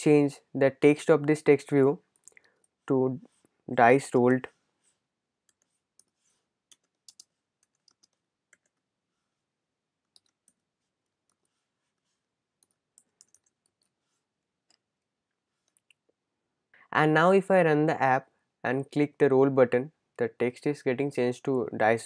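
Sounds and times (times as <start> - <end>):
computer keyboard typing: 5.5 - 8.8, 10.0 - 11.5, 12.6 - 14.0.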